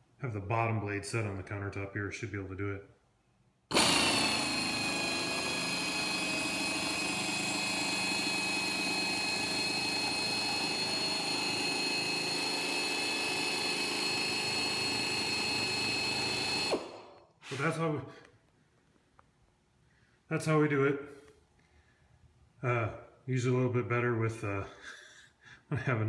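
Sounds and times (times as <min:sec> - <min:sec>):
air shear high whine: 0:03.7 - 0:17.8.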